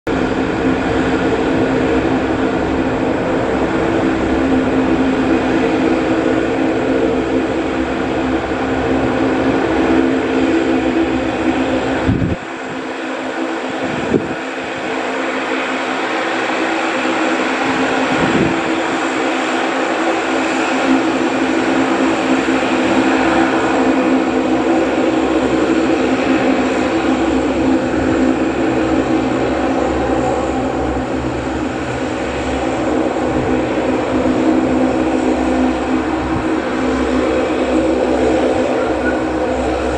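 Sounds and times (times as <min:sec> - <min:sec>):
turboprop engines and propellers running: 0:00.1 - 0:39.9.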